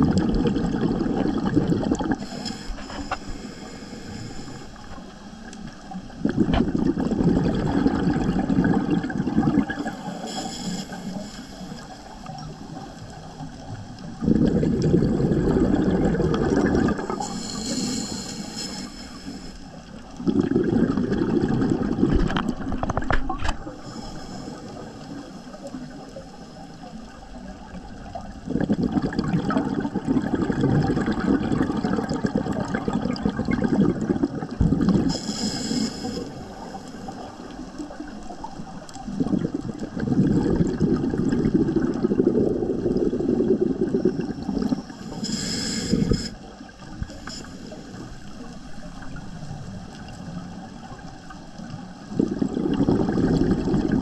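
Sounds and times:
exhaled bubbles underwater: 0.0s - 54.0s
regulator inhalation hiss: 2.2s - 5.2s, 9.8s - 13.4s, 17.0s - 20.0s, 23.8s - 26.9s, 35.1s - 37.7s, 44.9s - 46.5s, 47.1s - 48.6s.

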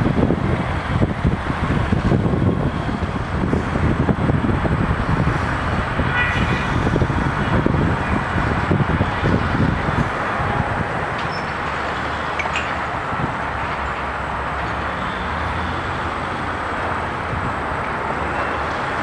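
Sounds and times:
demolition machinery rumble: 0.0s - 19.0s
high metallic squeal: 6.0s - 7.0s, 11.2s - 12.7s.

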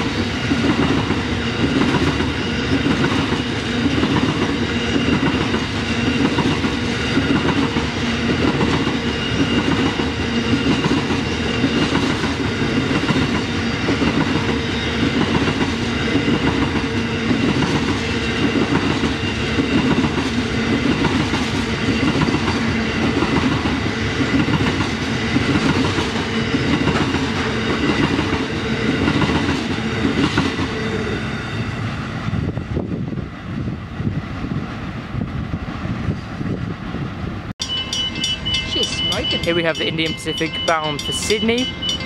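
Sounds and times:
train wagons rolling past: 0.0s - 32.8s.

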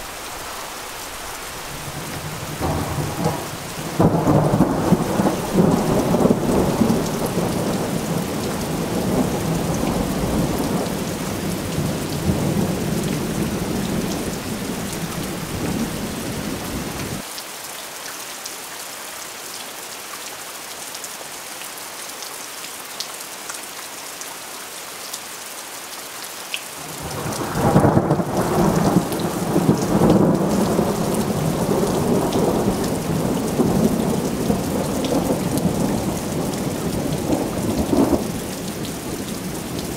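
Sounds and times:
steady rain: 0.0s - 39.9s
thunder rumbling: 1.5s - 17.2s, 27.0s - 39.2s.

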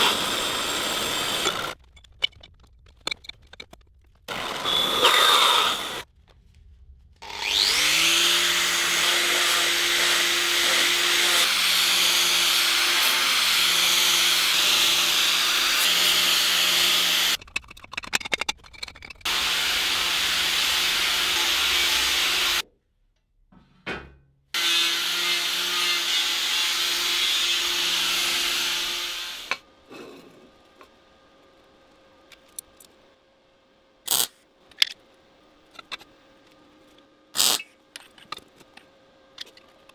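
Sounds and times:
power tool grinding metal: 0.0s - 1.8s, 4.3s - 6.0s, 7.2s - 17.4s, 19.2s - 22.6s, 24.6s - 29.6s
handling knocks and clicks: 1.8s - 4.3s.

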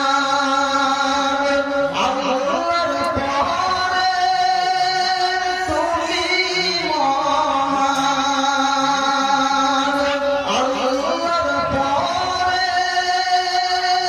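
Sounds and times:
man singing devotional song: 0.0s - 14.0s.

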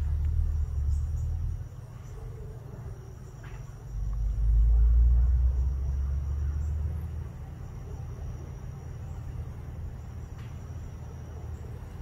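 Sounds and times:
low rumble: 0.0s - 1.7s.

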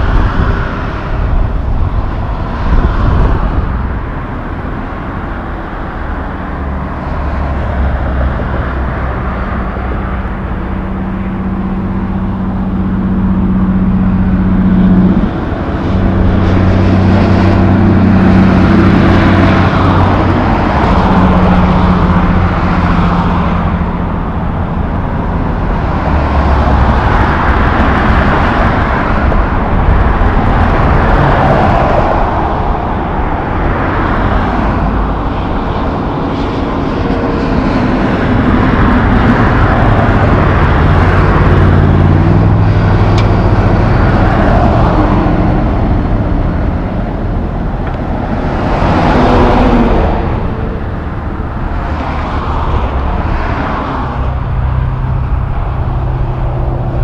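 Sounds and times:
highway traffic passing: 0.0s - 57.0s
truck passing: 0.0s - 57.0s.

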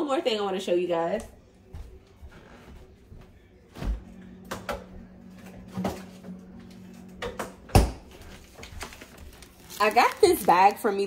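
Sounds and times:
steady low hum: 1.4s - 8.8s.

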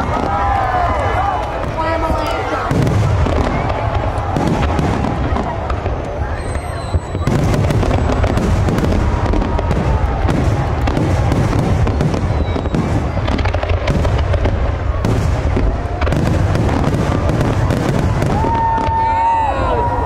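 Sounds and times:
fireworks booming and crackling: 0.0s - 20.0s.

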